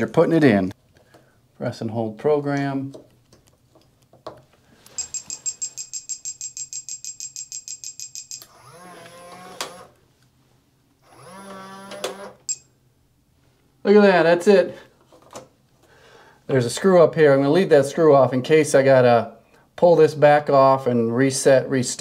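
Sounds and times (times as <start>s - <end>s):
small motor running: 8.5s - 9.9s, 11.0s - 12.3s.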